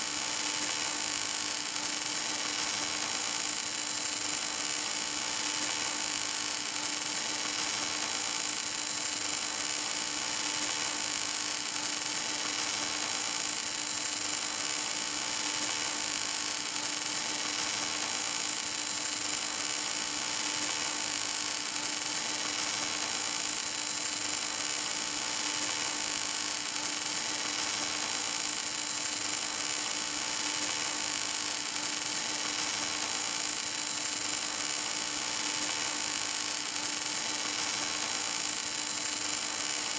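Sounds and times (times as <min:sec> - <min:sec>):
welding arc hissing: 0:00.0 - 0:39.9.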